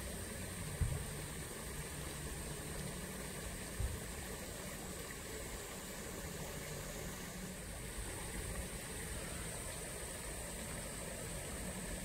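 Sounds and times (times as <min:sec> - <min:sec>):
water flowing: 0:00.0 - 0:12.0
low thump: 0:00.8 - 0:01.0.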